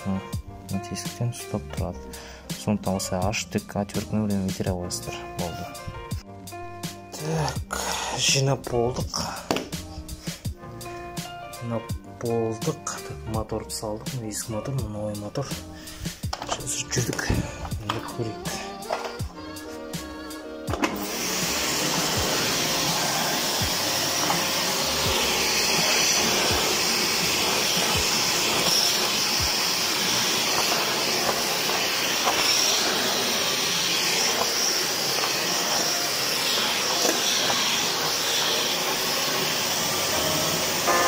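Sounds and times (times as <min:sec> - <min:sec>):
vacuum cleaner running: 0:15.8 - 0:41.0.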